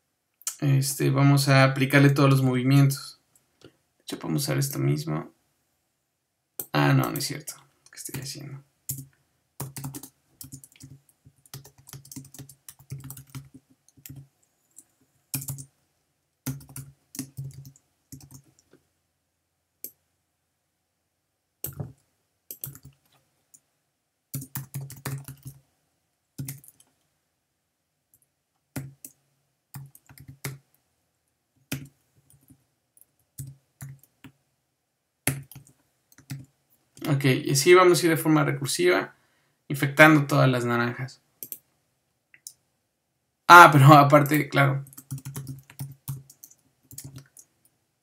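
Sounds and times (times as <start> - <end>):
typing on computer keyboard: 8.9 - 15.7, 16.5 - 18.8, 21.6 - 23.0, 24.4 - 25.6, 26.4 - 26.9, 29.8 - 30.6, 31.7 - 34.4, 35.3 - 36.5, 44.9 - 47.6.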